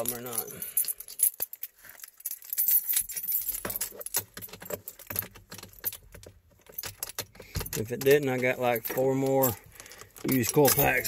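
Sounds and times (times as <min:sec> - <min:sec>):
car keys jangling: 0:00.0 - 0:11.0.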